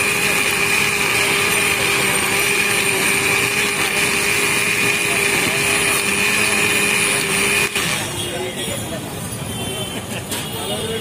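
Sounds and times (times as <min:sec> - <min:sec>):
electric blender whirring: 0:00.0 - 0:08.2.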